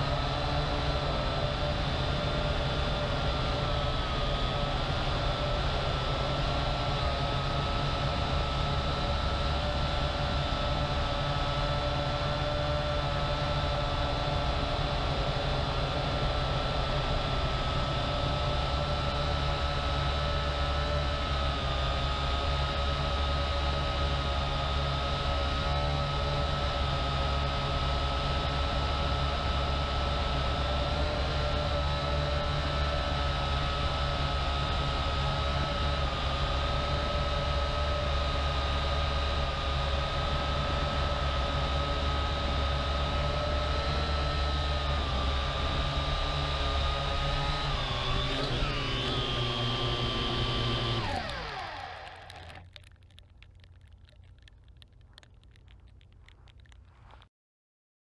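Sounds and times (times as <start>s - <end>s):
drone motors whining: 39.0s - 52.8s.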